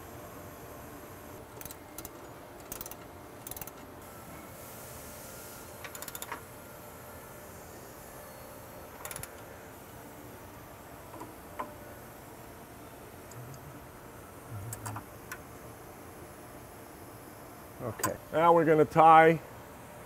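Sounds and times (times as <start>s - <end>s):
ratchet wrench clicking: 1.6s - 3.8s, 5.8s - 6.4s, 9.0s - 9.4s.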